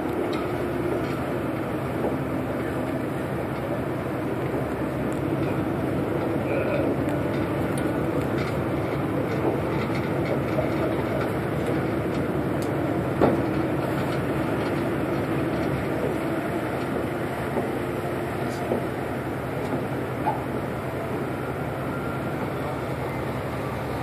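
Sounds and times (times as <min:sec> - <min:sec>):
diesel engines rumbling: 0:00.0 - 0:24.0.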